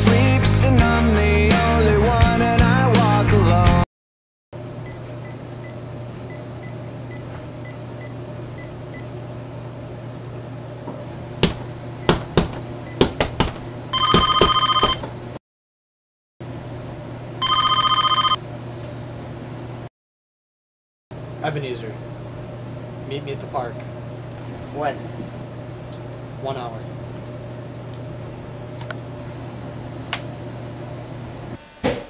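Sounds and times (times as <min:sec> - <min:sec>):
sharp knocks: 0:11.4 - 0:15.1
phone ringing electronic trill: 0:13.9 - 0:15.0, 0:17.4 - 0:18.4.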